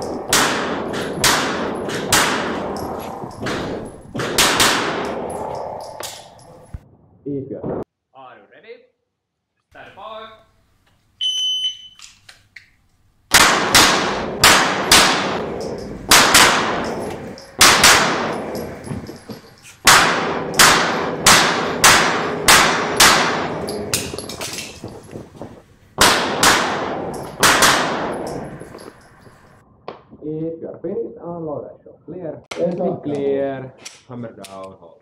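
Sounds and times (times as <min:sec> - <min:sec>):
pistol shots ringing indoors: 0:00.0 - 0:06.2, 0:13.3 - 0:18.9, 0:19.8 - 0:24.9, 0:26.0 - 0:28.8
shot timer beep: 0:11.2 - 0:12.0.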